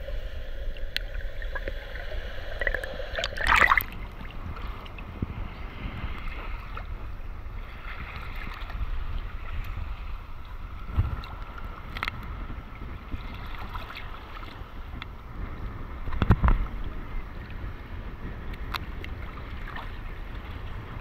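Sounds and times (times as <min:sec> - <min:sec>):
small waves lapping: 0:00.0 - 0:15.4, 0:18.8 - 0:21.0
wind on microphone: 0:00.0 - 0:21.0
water splash: 0:01.0 - 0:04.7.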